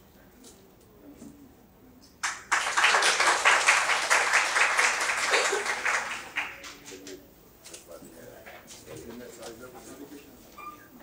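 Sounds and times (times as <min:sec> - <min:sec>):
audience applauding: 0:02.2 - 0:07.1.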